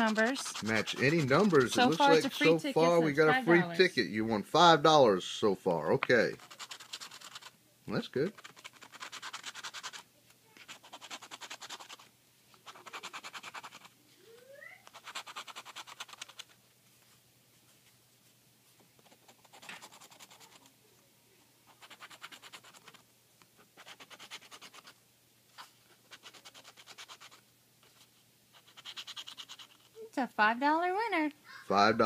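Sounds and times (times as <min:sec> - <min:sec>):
lottery ticket being scratched: 0:00.0 - 0:03.7, 0:05.9 - 0:07.6, 0:08.2 - 0:13.9, 0:14.8 - 0:16.6, 0:19.0 - 0:20.7, 0:21.7 - 0:23.0, 0:23.6 - 0:30.0.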